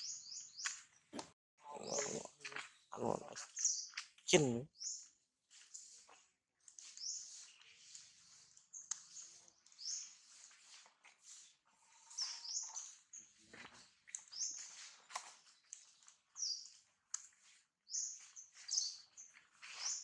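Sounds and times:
footsteps rustling dry leaves: 5.5 - 20.0
high-pitched chirping calls: 11.9 - 13.0.

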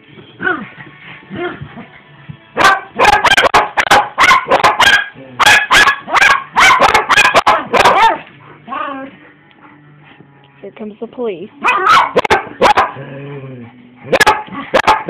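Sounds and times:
dogs whining and growling: 0.3 - 2.2, 7.6 - 10.2, 11.6 - 15.0
small dogs barking: 2.6 - 8.3, 11.6 - 13.0, 14.0 - 15.0.

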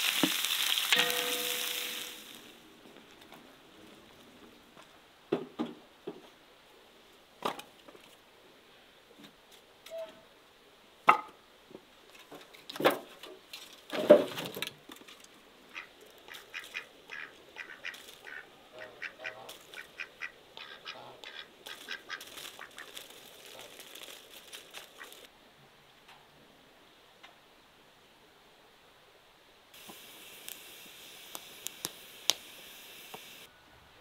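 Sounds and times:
birds pecking on paving stones: 12.2 - 25.3
duck quacking: 15.7 - 23.0.

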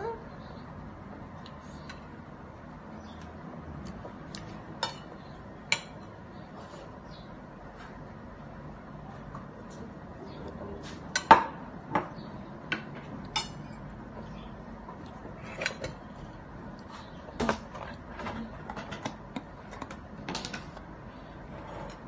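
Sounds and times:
cutlery clinking on a plate: 4.8 - 6.1, 12.8 - 13.8.

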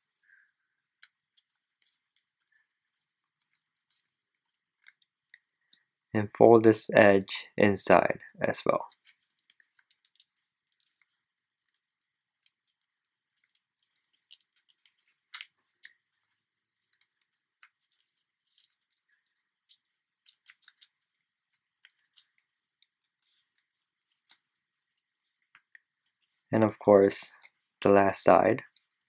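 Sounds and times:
paper crinkling while folded: 8.8 - 29.0.

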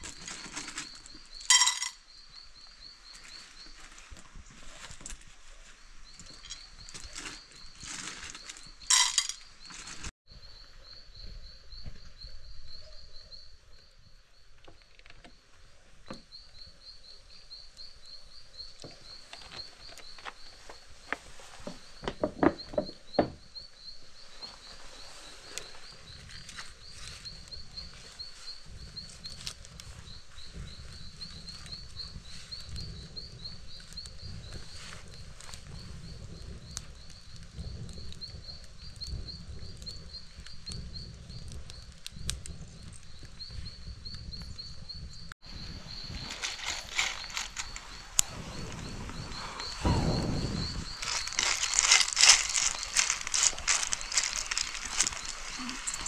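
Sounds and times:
handling clicks and crackles: 46.1 - 48.3, 51.0 - 56.0
low rumble: 48.2 - 51.8.

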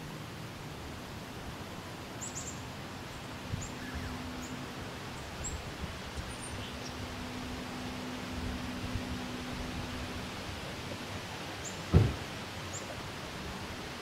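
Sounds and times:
steady background hiss: 0.0 - 14.0.

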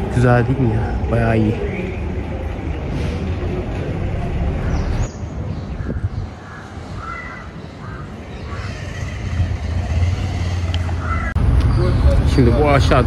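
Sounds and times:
crows cawing: 5.8 - 11.4.

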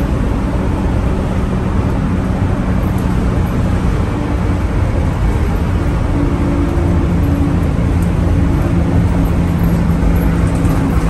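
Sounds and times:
bus engine drone: 0.0 - 11.0
road and wind noise: 0.0 - 11.0.

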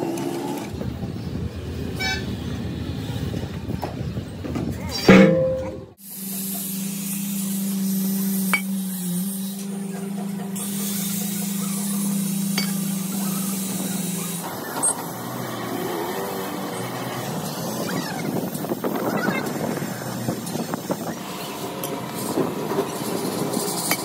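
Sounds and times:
rough noisy workshop sound: 0.0 - 24.0
workshop machinery humming: 5.0 - 24.0.

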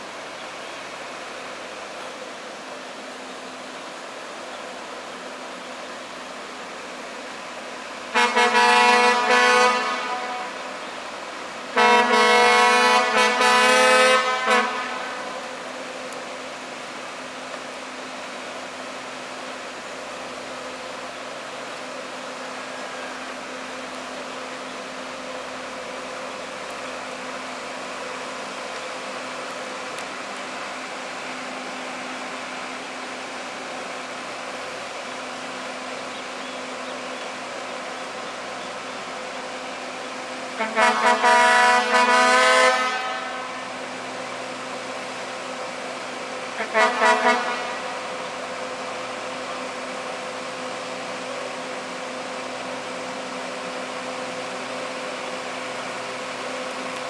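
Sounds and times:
faint railcar hum: 0.0 - 57.0
train horn blasts: 8.1 - 10.7, 11.7 - 15.6, 40.5 - 43.8, 46.5 - 48.2.

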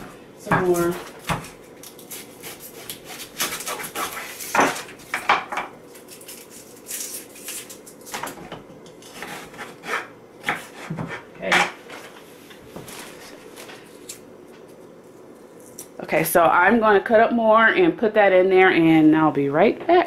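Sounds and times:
knife cutting onion on board: 0.0 - 5.3, 9.0 - 11.8.

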